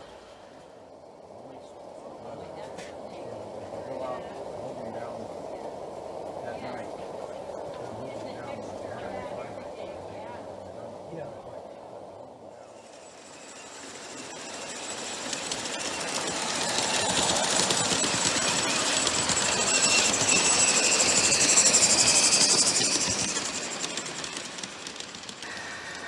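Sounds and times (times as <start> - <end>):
model steam train clattering past: 12.6 - 26.0.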